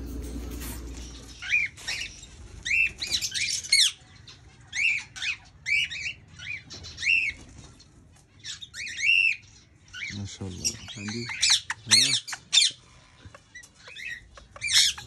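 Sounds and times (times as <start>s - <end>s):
cockatiels squawking: 8.4s - 15.0s.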